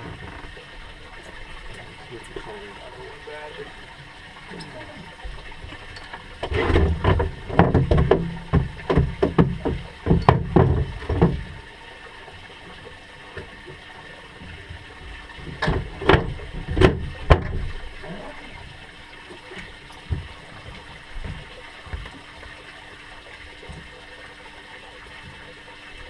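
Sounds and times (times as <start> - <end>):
knocks and thuds on a boat: 6.4 - 11.7, 14.4 - 18.4, 19.6 - 22.3, 23.6 - 24.0.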